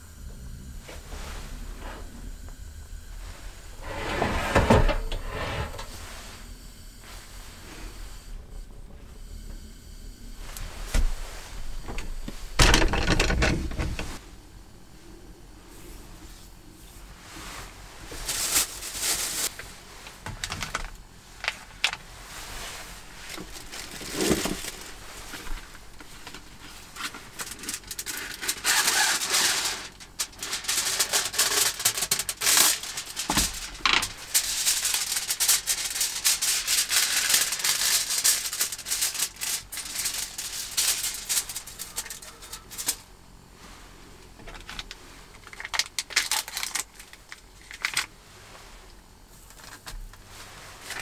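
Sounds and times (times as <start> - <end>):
rustling and clicking objects: 18.1 - 22.1, 22.7 - 43.0.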